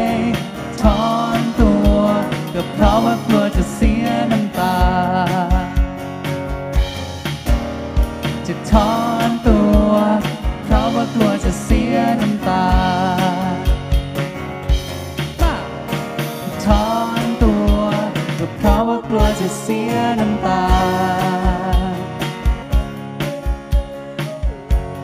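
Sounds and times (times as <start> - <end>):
people singing: 0.0 - 5.8, 8.4 - 13.9, 16.4 - 25.0
live band playing pop song: 0.0 - 25.0.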